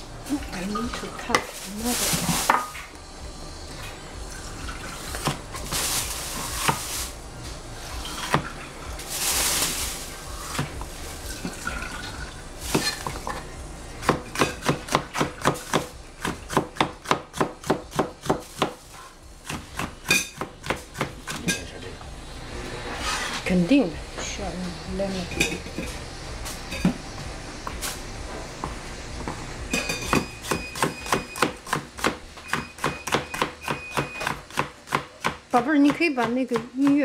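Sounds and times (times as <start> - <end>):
cleaver chopping on cutting board: 14.0 - 18.8, 19.4 - 21.5.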